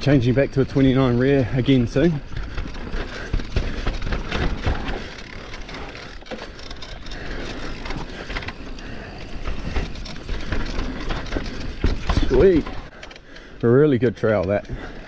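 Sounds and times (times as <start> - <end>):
tyres crunching over dirt: 0.0 - 13.0
bike rattling and clacking: 0.0 - 15.0.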